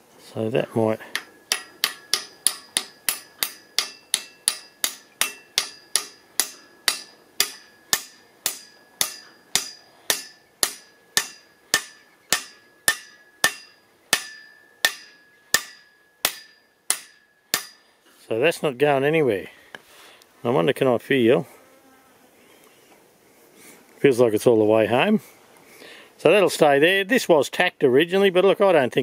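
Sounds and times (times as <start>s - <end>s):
hammer tapping on steel: 1.1s - 17.8s.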